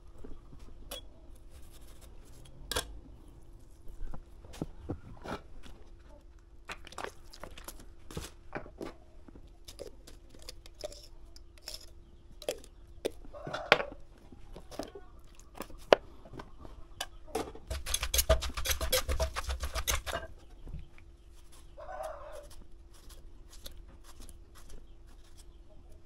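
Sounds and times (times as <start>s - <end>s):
utensils clicking on mortar: 17.7s - 20.3s
wooden pestle pounding in mortar: 17.7s - 20.3s.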